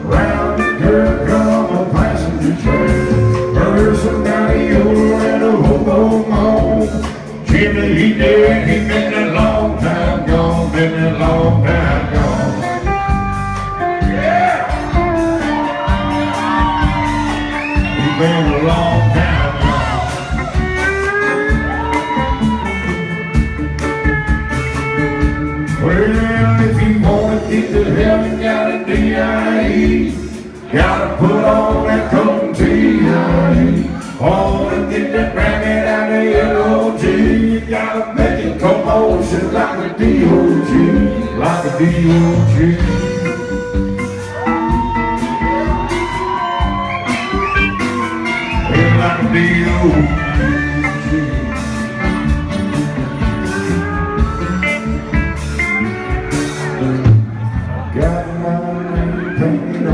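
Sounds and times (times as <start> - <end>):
man singing lead vocal: 0.0 - 13.0, 17.5 - 20.6, 25.6 - 43.9, 48.2 - 52.3, 57.8 - 59.9
steady drum beat: 0.0 - 59.3
live country band playing: 0.0 - 59.9
pedal steel guitar: 11.1 - 27.0, 40.3 - 57.9.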